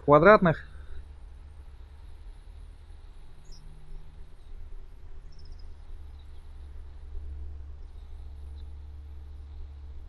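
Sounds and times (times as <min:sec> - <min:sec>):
low rumble: 0:00.0 - 0:10.0
faint high chirps: 0:03.3 - 0:04.6, 0:05.2 - 0:06.6.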